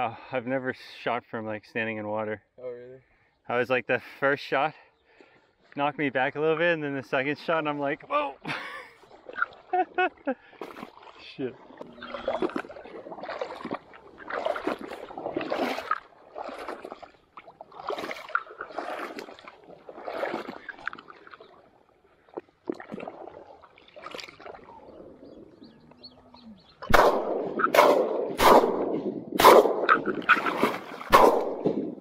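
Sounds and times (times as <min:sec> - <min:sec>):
sloshing steps in marsh water: 0:08.7 - 0:26.0, 0:26.7 - 0:32.0
shotgun shots: 0:26.9 - 0:30.2, 0:31.1 - 0:32.0.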